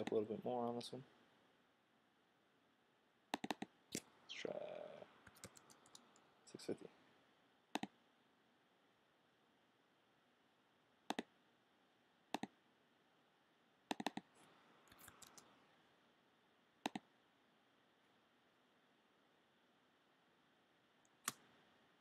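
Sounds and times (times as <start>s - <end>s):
computer mouse clicks: 3.3s - 4.1s, 5.2s - 6.3s, 7.7s - 8.0s, 11.1s - 11.3s, 12.3s - 12.6s, 13.9s - 14.3s, 14.9s - 15.5s, 16.8s - 17.1s.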